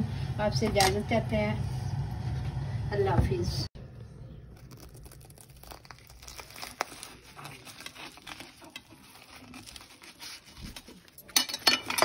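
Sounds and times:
fried pastry crackling: 4.0s - 11.6s.

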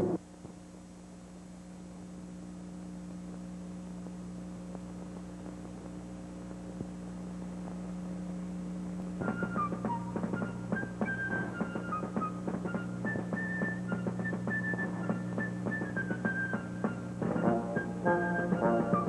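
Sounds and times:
electrical hum: 0.0s - 19.0s
music: 2.0s - 19.0s.

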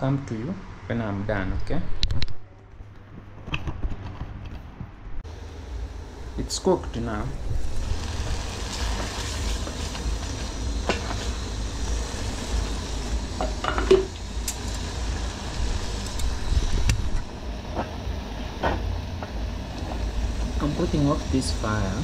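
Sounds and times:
steady low rumble: 4.3s - 22.0s
pots and lids clinking: 13.4s - 14.8s.

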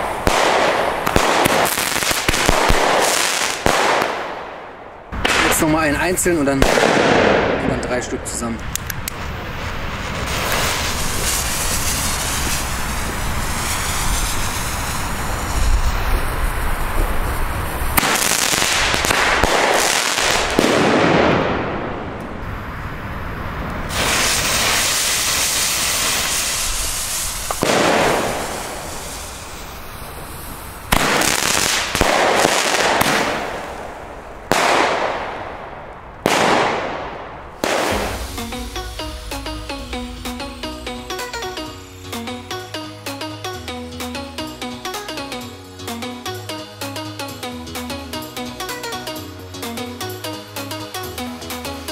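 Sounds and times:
firework shots: 0.0s - 22.5s, 23.5s - 43.2s
burning fuse hissing: 8.9s - 18.2s, 23.8s - 31.9s, 37.7s - 42.9s.

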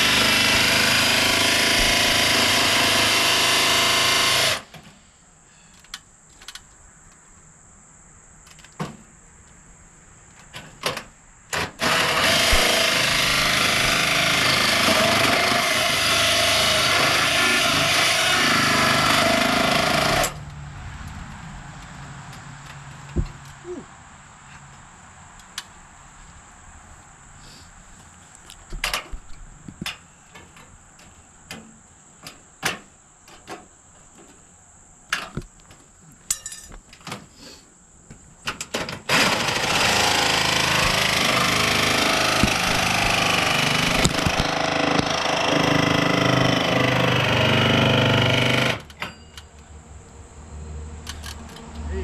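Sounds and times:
power drill boring hole: 0.0s - 4.7s, 11.6s - 20.4s, 39.1s - 48.9s.

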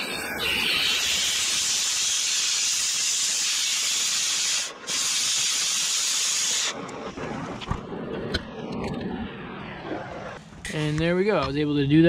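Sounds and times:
cutting torch hissing: 0.0s - 7.6s.

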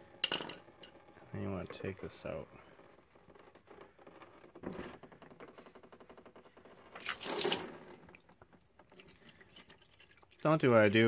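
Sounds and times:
liquid splashing into bucket: 7.0s - 10.5s.

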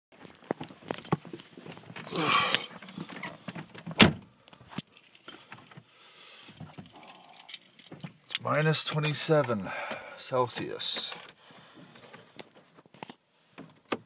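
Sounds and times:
car keys jangling: 0.2s - 3.4s, 4.7s - 12.6s.

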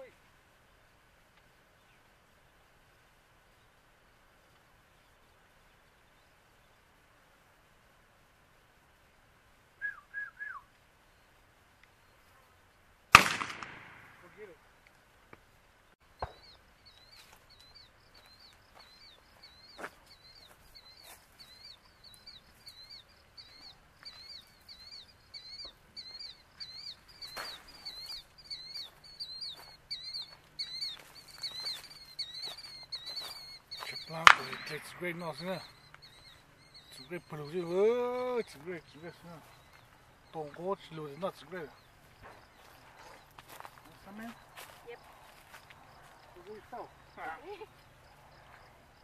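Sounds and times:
shotgun shot echoing: 13.1s - 14.5s, 34.1s - 35.5s
high repeating chirp: 16.4s - 39.1s.

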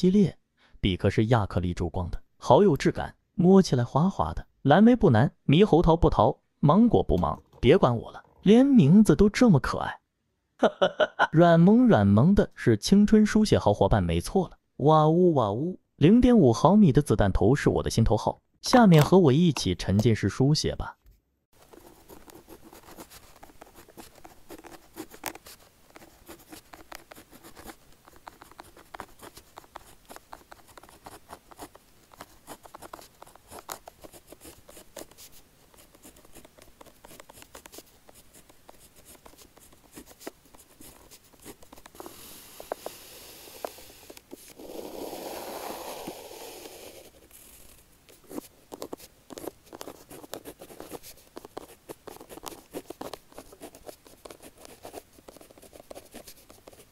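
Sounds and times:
pen scratching on paper: 21.6s - 56.9s.

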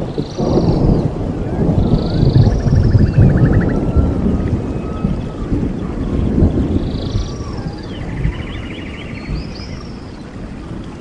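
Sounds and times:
steady low rumble: 0.0s - 7.5s
trilling bird-like calls: 1.9s - 5.4s.

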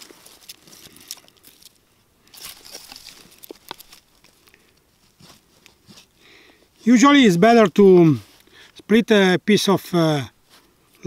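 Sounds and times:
sticks rustling and crunching: 0.0s - 8.8s.

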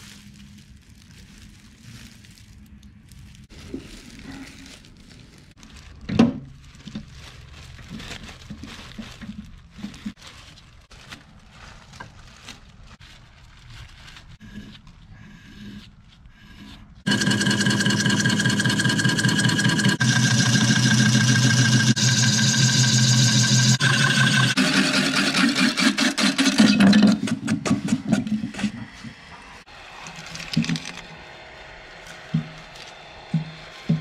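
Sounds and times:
lathe gouge cutting wood: 17.1s - 27.0s.

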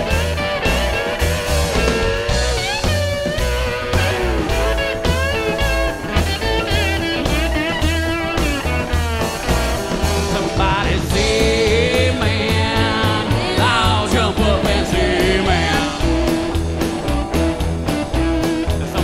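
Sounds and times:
lap steel guitar solo: 0.0s - 10.8s
rock band playing: 0.0s - 19.0s.

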